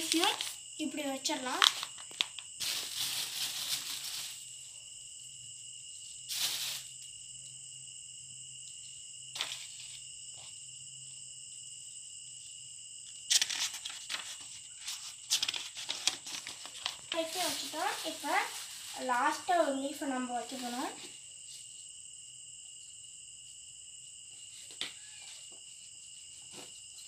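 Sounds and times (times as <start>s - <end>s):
plastic bag rustling: 0.0s - 0.6s, 1.4s - 4.6s, 6.3s - 6.9s, 13.3s - 21.2s
cricket trill: 0.0s - 27.0s
book pages rustling: 13.3s - 19.1s.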